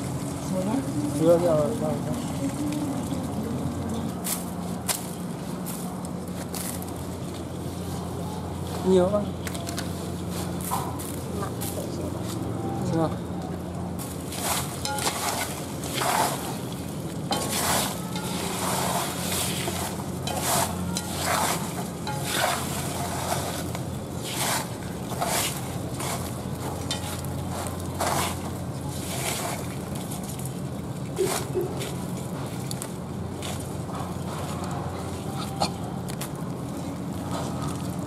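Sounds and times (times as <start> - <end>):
crabs and salt scraping metal basin: 14.0 - 38.0.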